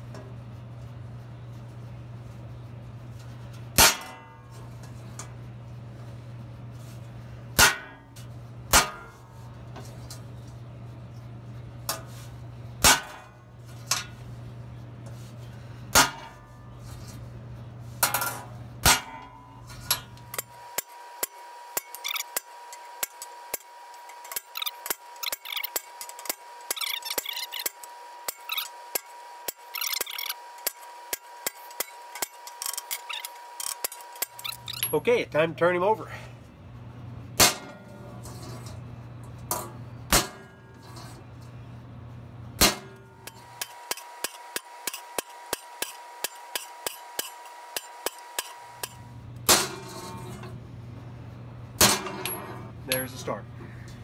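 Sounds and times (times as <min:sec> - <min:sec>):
hammer striking saw blade: 0:07.6 - 0:08.0, 0:18.0 - 0:35.0, 0:42.6 - 0:50.4.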